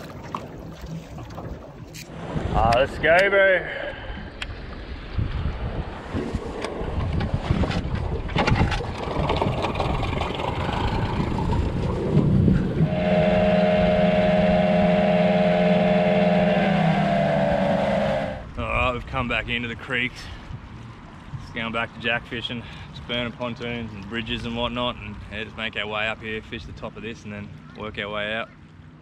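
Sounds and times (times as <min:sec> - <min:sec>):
outboard motor droning: 0:09.2 - 0:18.5.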